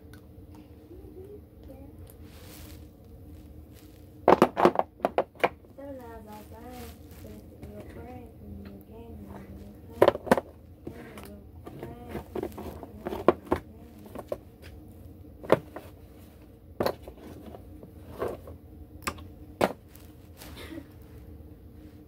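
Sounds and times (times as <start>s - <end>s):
low steady hum: 0.0s - 22.0s.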